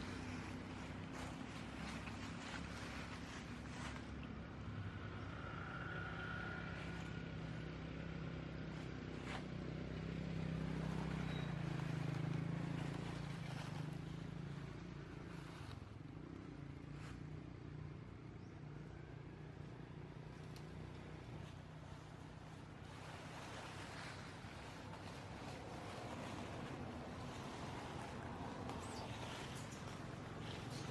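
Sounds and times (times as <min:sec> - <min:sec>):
distant vehicle engine hum: 0:00.0 - 0:30.9.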